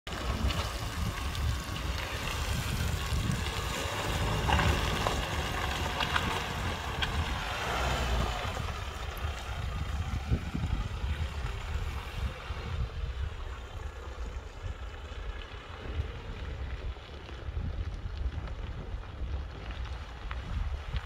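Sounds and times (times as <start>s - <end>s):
pickup engine running: 0.1s - 20.0s
wind buffeting microphone: 0.1s - 21.0s.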